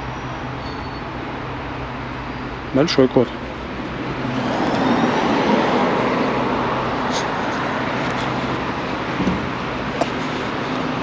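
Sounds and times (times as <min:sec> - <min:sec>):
vehicle passing close by: 0:03.7 - 0:11.0.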